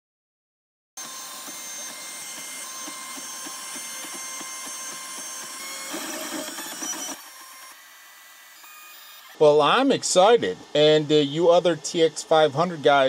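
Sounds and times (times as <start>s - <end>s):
printer stepper motors whining: 1.0s - 7.8s.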